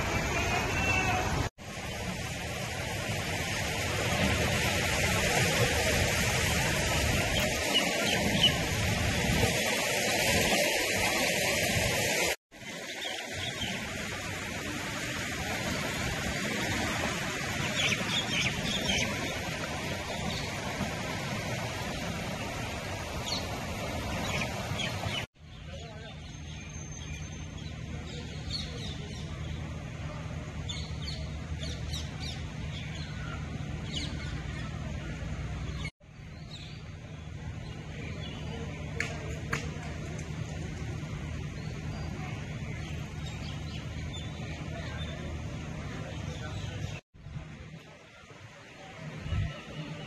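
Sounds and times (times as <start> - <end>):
river rushing: 0.0 - 25.3
birds chirping: 7.2 - 9.3, 17.4 - 20.6.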